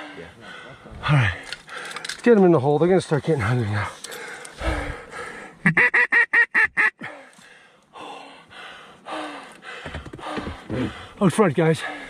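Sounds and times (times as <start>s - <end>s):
duck call quacks: 5.6s - 7.0s.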